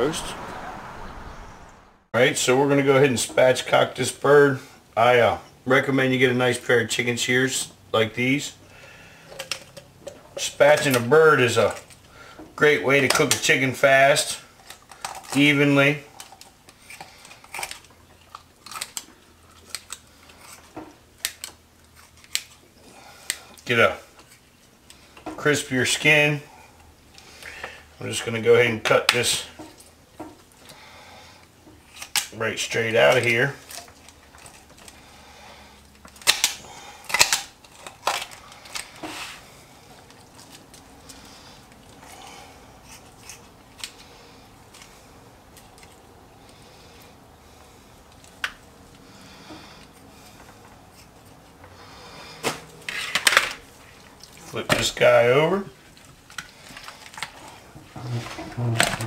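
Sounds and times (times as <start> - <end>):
shears crunching through bone: 16.2 - 22.6, 36.0 - 41.4.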